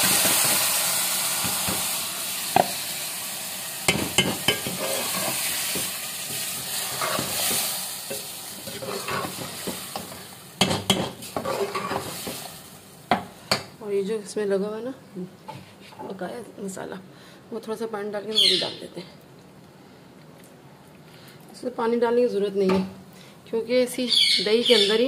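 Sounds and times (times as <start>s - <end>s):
chicken sizzling in hot oil: 0.0s - 13.1s
spoon knocking against pot: 3.9s - 4.8s, 9.1s - 11.5s
metal spoon scraping pot: 4.2s - 5.4s, 8.6s - 9.4s, 10.9s - 12.0s.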